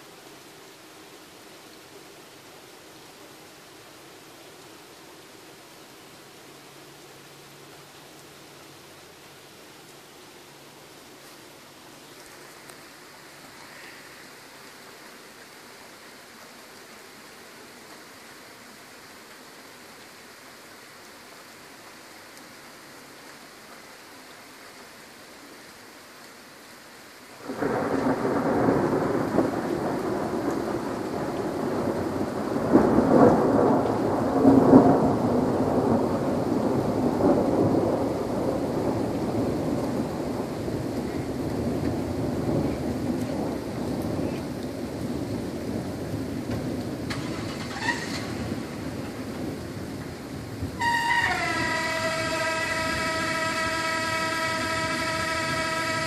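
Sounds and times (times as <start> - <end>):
steady rain: 0.0 - 56.0
thunder rumbling: 27.4 - 56.0.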